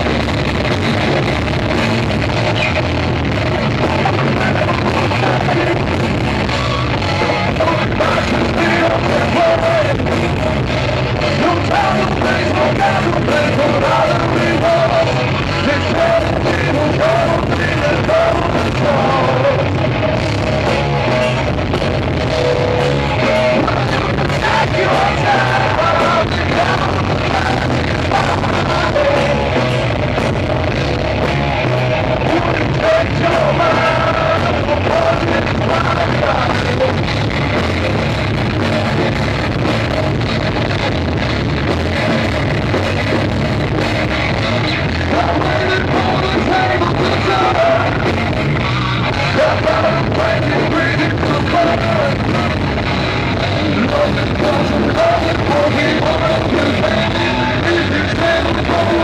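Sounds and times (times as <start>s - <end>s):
drums: 0.0s - 59.0s
electric guitars: 0.0s - 59.0s
person singing into a microphone: 3.6s - 20.9s, 21.8s - 31.1s, 32.1s - 39.1s, 44.8s - 59.0s.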